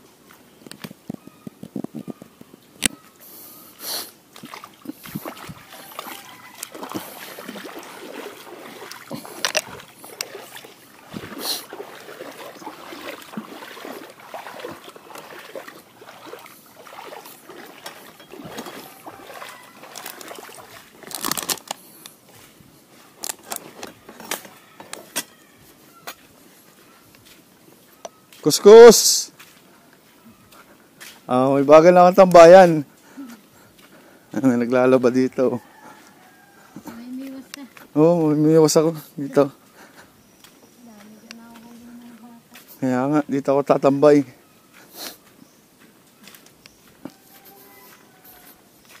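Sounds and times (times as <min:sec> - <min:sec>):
footsteps splashing through water: 0:00.2 - 0:43.8, 0:44.6 - 0:49.0
fishing gear clicking and knocking: 0:08.9 - 0:10.4, 0:19.8 - 0:22.1, 0:23.2 - 0:25.3.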